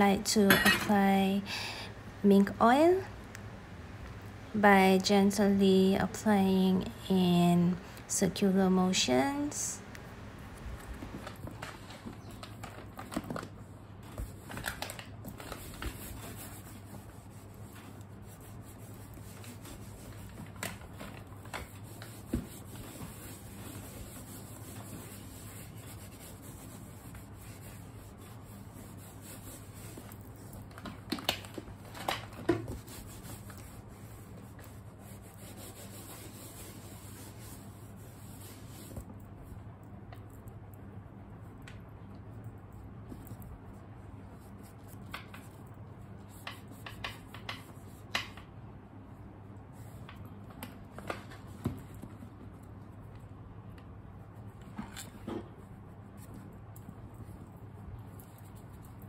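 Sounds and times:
faint steady hum: 0:00.0 - 0:59.0
cloth rubbing on leather: 0:15.3 - 0:30.7, 0:32.6 - 0:39.2.

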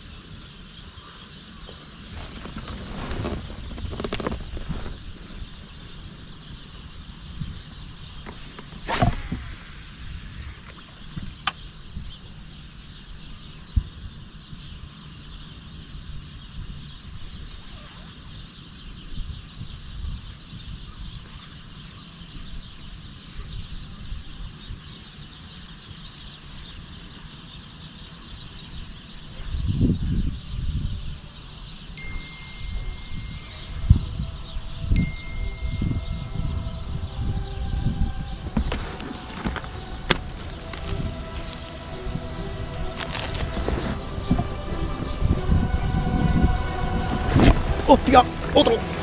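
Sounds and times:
wind rumbling on microphone: 0:00.0 - 0:49.0
heavy low rumble: 0:32.1 - 0:49.0
loud rush: 0:38.4 - 0:49.0.

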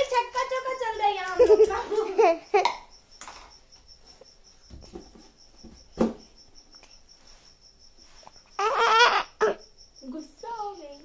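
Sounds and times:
cricket chirping: 0:00.0 - 0:11.0
child squealing: 0:08.6 - 0:09.6.

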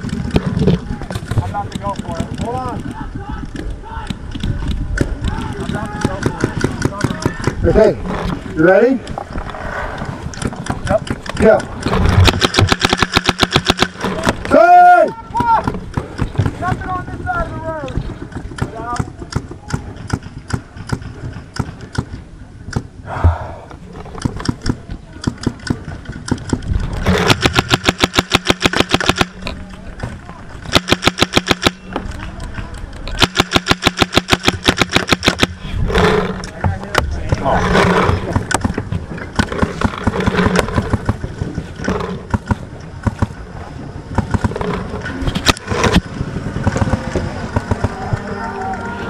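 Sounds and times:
paintballs striking wood: 0:00.0 - 0:07.7, 0:10.3 - 0:14.6, 0:24.2 - 0:35.6
paintball markers firing: 0:00.0 - 0:07.8, 0:10.4 - 0:14.5, 0:17.9 - 0:22.9, 0:24.2 - 0:29.6, 0:30.6 - 0:35.6.

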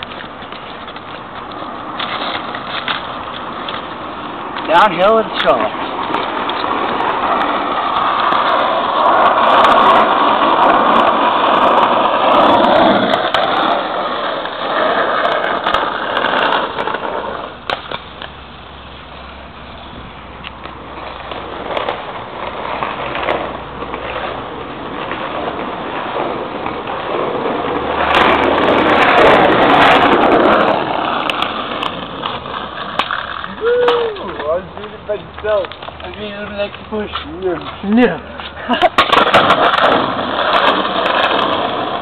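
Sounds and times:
small wheels rolling on asphalt: 0:00.0 - 0:42.0.

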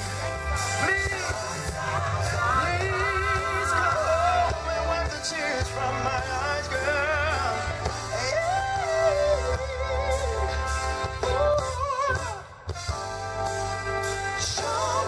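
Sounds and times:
live band playing: 0:00.0 - 0:15.0
man singing long notes: 0:00.7 - 0:12.6.

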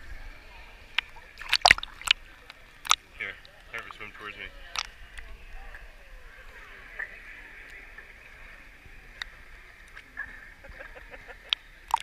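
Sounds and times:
muffled water lapping: 0:00.0 - 0:12.0
faint clicks: 0:04.7 - 0:05.4.

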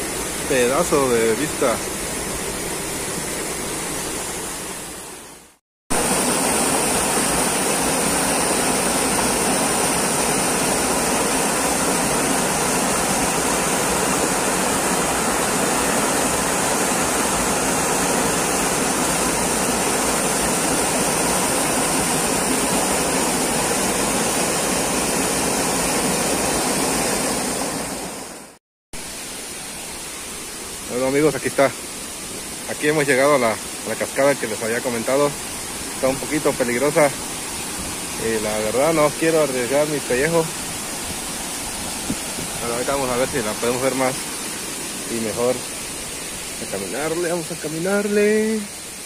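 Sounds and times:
stream rushing over rocks: 0:00.0 - 0:49.0.

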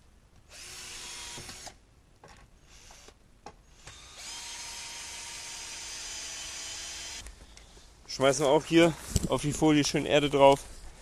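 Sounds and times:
power drill driving screws into wood: 0:00.5 - 0:01.8, 0:02.6 - 0:07.4.

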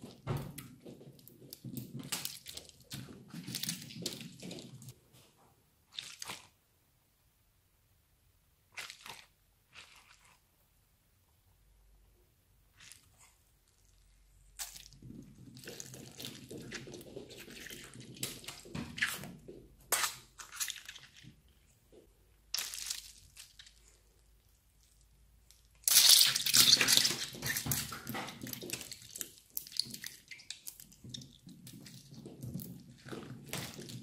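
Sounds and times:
squishing and crackling: 0:00.0 - 0:05.1, 0:05.8 - 0:06.7, 0:08.6 - 0:10.7, 0:12.5 - 0:34.0
water beads spilling and rattling: 0:22.5 - 0:34.0.

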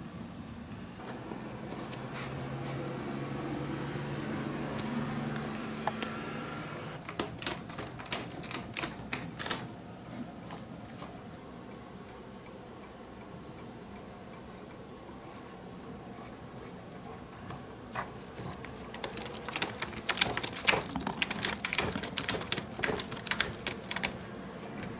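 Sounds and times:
cat clawing: 0:17.0 - 0:24.3.

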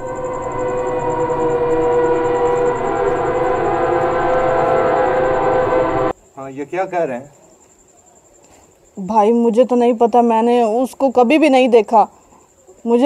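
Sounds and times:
sustained synthesized chord: 0:00.0 - 0:06.1.

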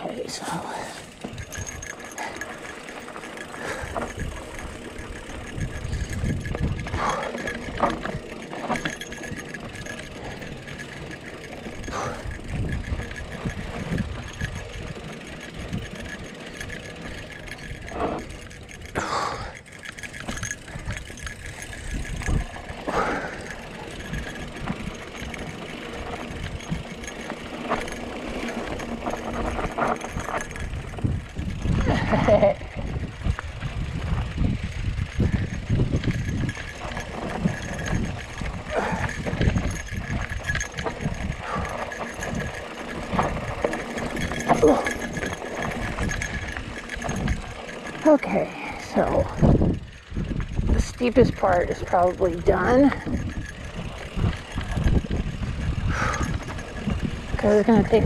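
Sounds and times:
bike rattling over bumps: 0:00.0 - 0:58.0
bike tyres on dirt: 0:00.0 - 0:58.0
wind on microphone: 0:03.6 - 0:07.8, 0:11.7 - 0:15.8, 0:29.3 - 0:47.6, 0:48.9 - 0:58.0.

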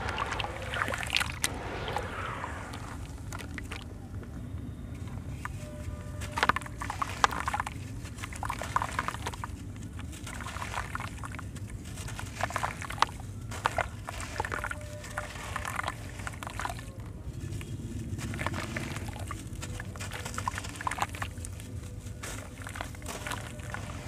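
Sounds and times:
wet sand splashing into water: 0:00.0 - 0:03.9, 0:10.3 - 0:17.0, 0:17.6 - 0:21.6, 0:22.2 - 0:24.0
sharp cracks: 0:00.0 - 0:04.2.

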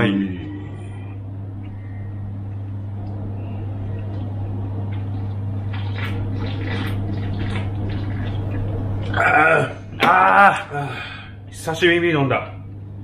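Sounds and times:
steady low hum: 0:00.0 - 0:13.0
quick swallowing gulps: 0:03.8 - 0:09.7.

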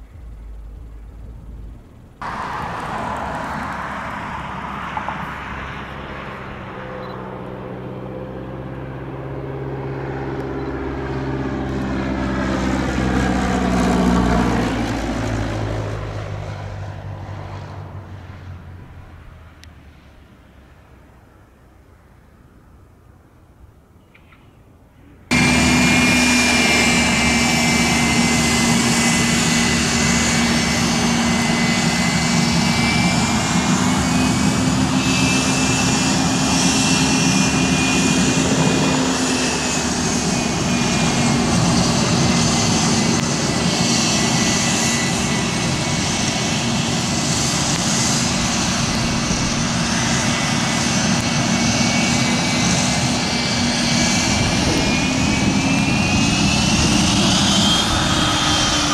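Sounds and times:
low steady hum: 0:00.0 - 0:02.2
jet engines running: 0:00.0 - 0:20.8, 0:25.2 - 0:58.9.

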